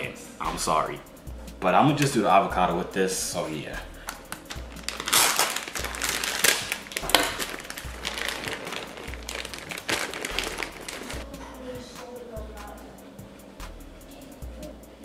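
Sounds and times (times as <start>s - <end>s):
plastic bag crinkling: 4.4s - 11.2s.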